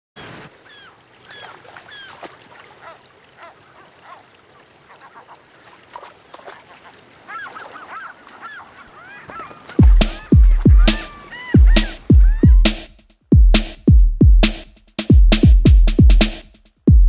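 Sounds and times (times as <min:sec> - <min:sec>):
gulls calling: 0:00.2 - 0:12.9.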